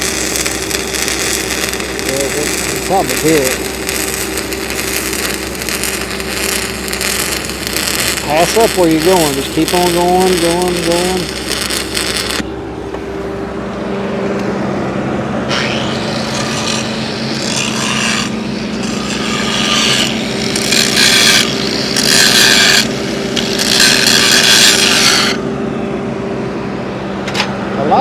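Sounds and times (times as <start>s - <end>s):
grinder scraping steel weld: 0.0s - 12.4s, 15.5s - 25.4s
angle grinder whining: 0.0s - 12.6s, 14.4s - 25.6s.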